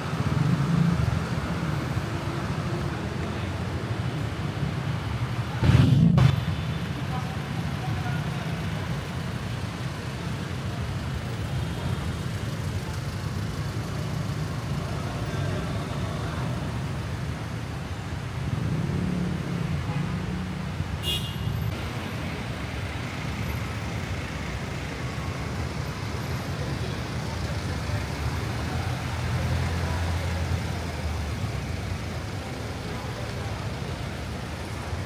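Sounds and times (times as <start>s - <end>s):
street traffic rumble: 0.0s - 35.0s.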